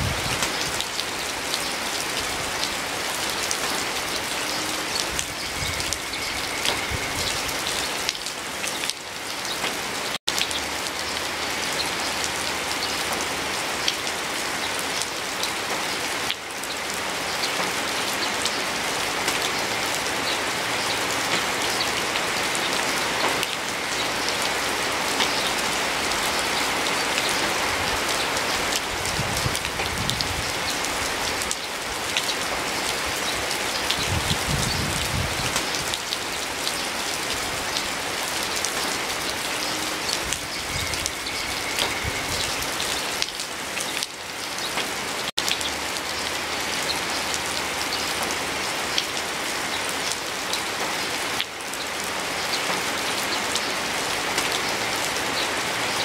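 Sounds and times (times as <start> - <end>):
steady rain hiss: 0.0 - 56.0.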